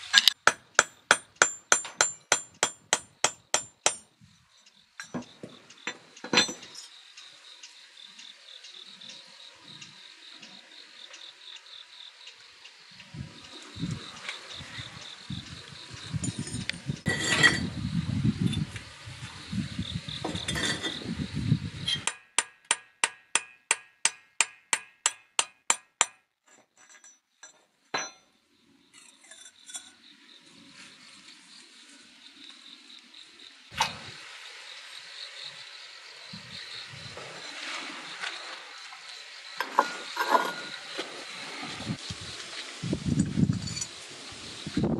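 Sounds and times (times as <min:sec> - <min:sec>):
crickets chirping: 0:00.0 - 0:22.6, 0:26.6 - 0:44.9.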